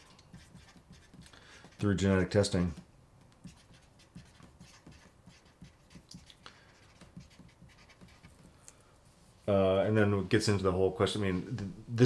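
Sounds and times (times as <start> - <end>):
marker writing on paper: 0.0 - 8.5.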